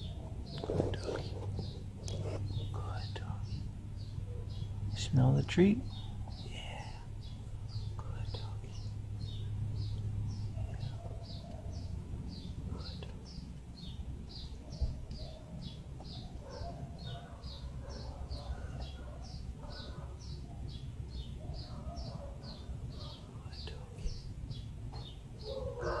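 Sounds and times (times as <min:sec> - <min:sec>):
bird chirping: 0:00.0 - 0:26.0.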